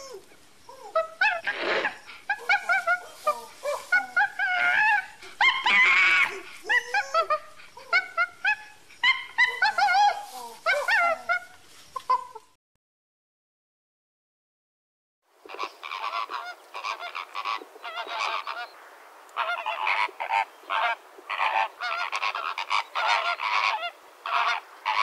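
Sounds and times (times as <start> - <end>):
bonobos squeaky calls: 0.8 - 12.3
harsh rasping call: 0.9 - 12.3.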